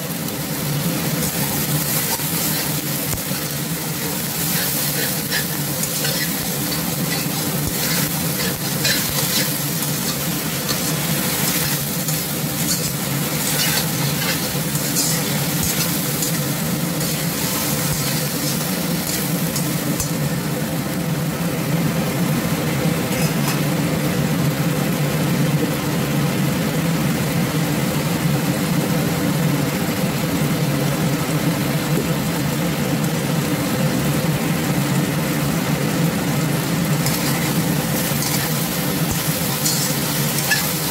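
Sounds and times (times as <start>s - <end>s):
steady low hum: 0.0s - 25.9s, 28.1s - 40.9s
food sizzling in a wok: 0.0s - 40.9s
spatula scraping a wok: 0.5s - 20.4s, 23.1s - 23.8s, 36.9s - 40.9s.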